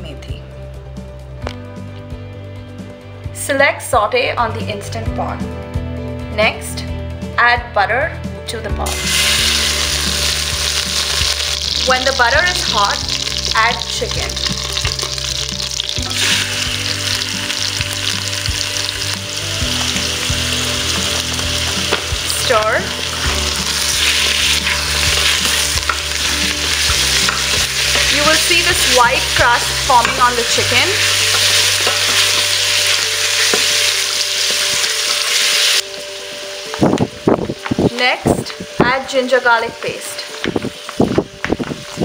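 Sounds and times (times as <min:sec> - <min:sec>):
chicken sizzling in butter: 0:08.9 - 0:38.1.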